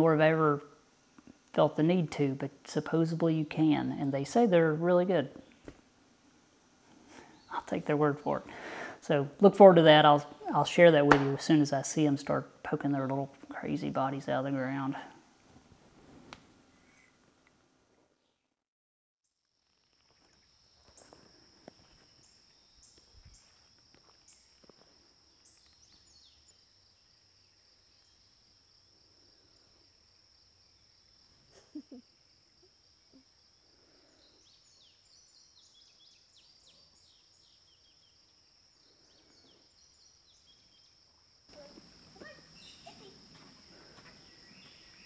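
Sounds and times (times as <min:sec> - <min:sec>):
high-pitched insect trill: 0:19.5 - 0:45.0
faint bird chirps: 0:30.7 - 0:45.0.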